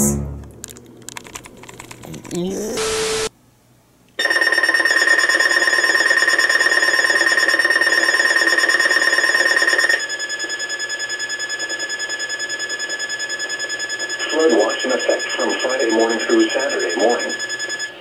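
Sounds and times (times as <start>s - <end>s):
evenly pulsing beep: 2.7s - 3.3s, 4.2s - 18.0s
fast-pulsing electronic alarm beeping: 4.2s - 18.0s.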